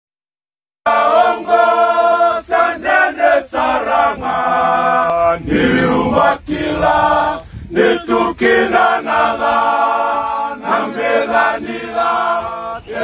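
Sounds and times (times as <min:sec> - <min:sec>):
men singing in harmony: 0:00.8 - 0:13.0.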